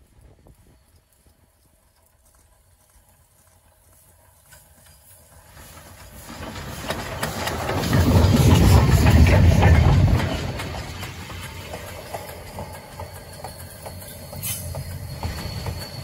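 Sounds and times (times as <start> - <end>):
steam locomotive passing with train: 0.0 - 16.0.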